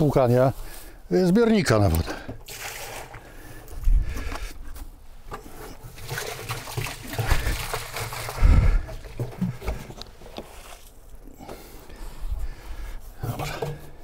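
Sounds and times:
water splashing and trickling: 1.7s - 4.4s, 5.3s - 11.8s.

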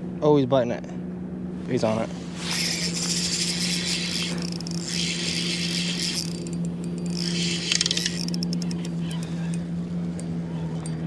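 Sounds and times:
electric motor humming: 2.0s - 11.0s
fishing reel clicks: 2.4s - 11.0s.

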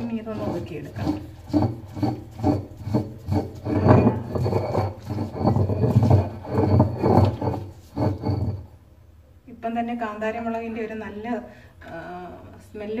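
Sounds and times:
stone roller grinding on slab: 0.0s - 8.8s.

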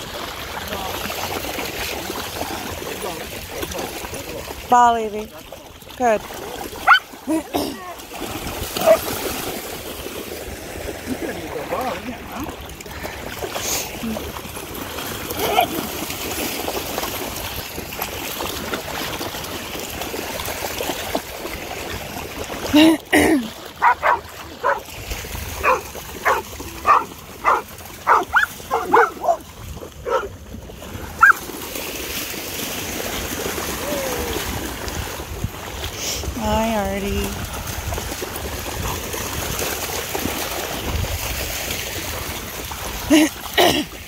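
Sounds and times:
dogs splashing in water: 0.0s - 44.0s
dog barking: 6.8s - 7.1s, 23.8s - 24.8s, 25.6s - 29.4s, 30.0s - 30.3s, 31.2s - 31.4s.

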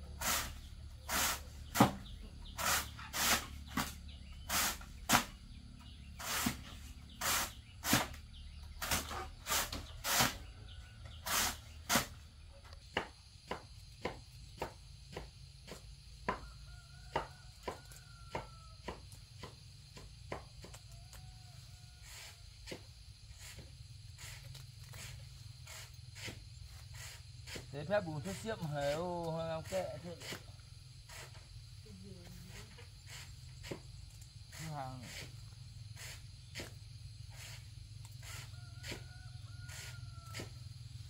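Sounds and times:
hand tool swishing and scraping: 0.1s - 12.2s, 22.1s - 27.7s, 36.0s - 39.0s.

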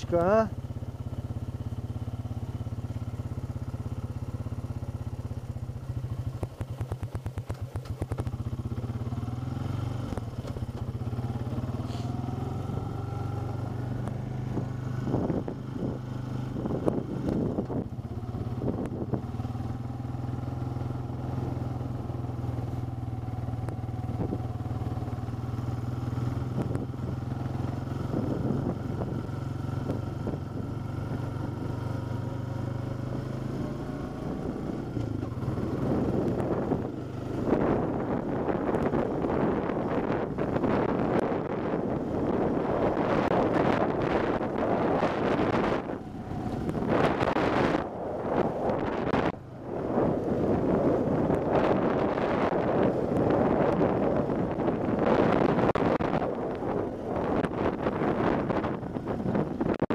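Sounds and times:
off-road vehicle engine running: 0.0s - 59.9s
vehicle rattling over rough ground: 0.0s - 59.9s.

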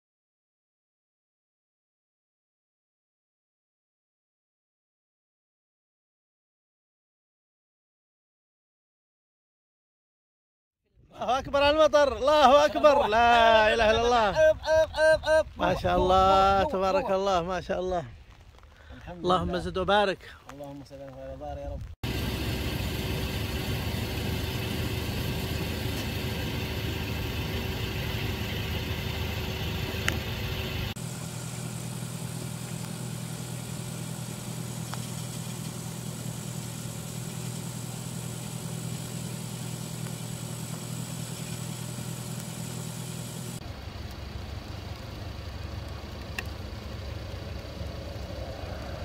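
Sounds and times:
car engine idling: 22.0s - 49.0s.

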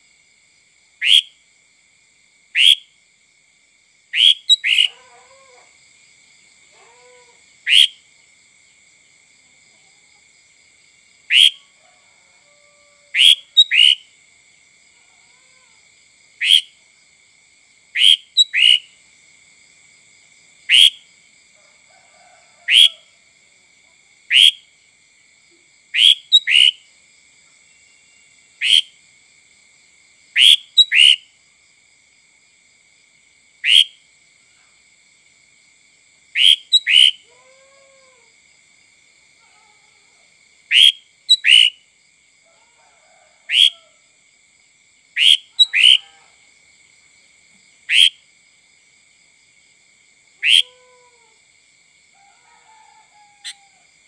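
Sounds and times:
bird giving sharp calls: 4.2s - 5.0s, 18.0s - 18.8s.

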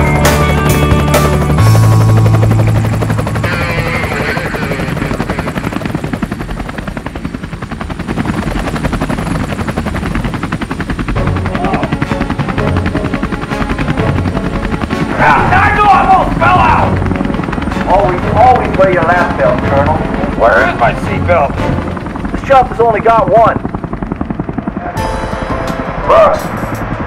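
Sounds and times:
helicopter engine running: 0.0s - 27.0s
helicopter rotor blades chopping: 0.0s - 27.0s.

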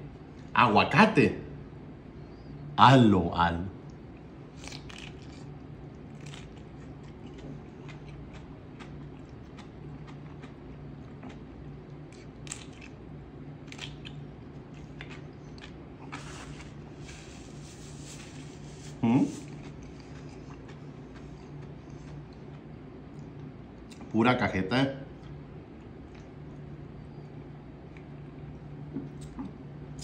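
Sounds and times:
steady low hum: 0.0s - 30.0s
crunchy chewing: 3.8s - 24.1s.

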